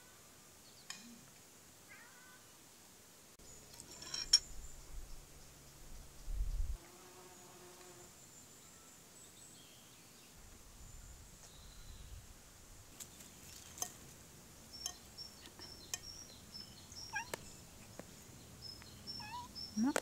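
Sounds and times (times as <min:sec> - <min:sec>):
small birds chirping: 0:07.4 - 0:12.3, 0:12.9 - 0:20.0.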